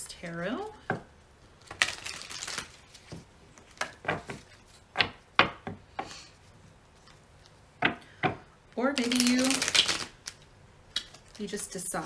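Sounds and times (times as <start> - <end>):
cards being shuffled: 1.6 - 4.9, 8.9 - 10.4.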